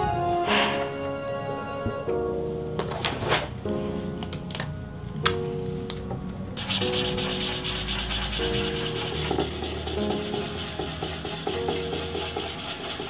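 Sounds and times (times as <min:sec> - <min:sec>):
background music with held notes: 0:00.0 - 0:13.0
fast scratchy rubbing: 0:06.6 - 0:13.0.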